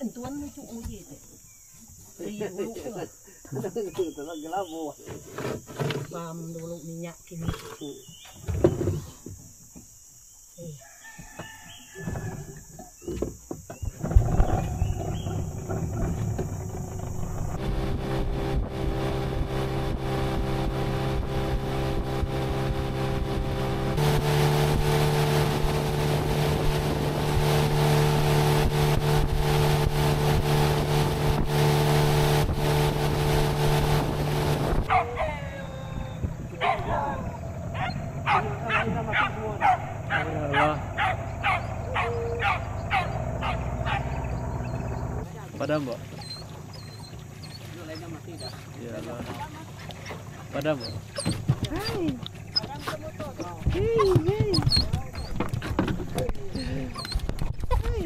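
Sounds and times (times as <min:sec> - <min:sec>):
outboard motor running: 0:12.0 - 0:58.0
water rushing past hull: 0:14.0 - 0:58.0
scattered knocks: 0:51.2 - 0:56.4.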